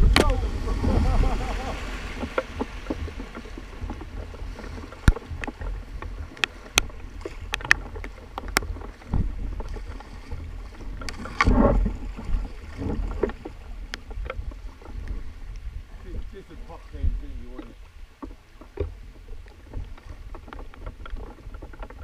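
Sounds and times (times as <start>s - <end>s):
river current rushing: 0.0s - 20.6s
kayak paddle strokes splashing: 0.0s - 22.0s.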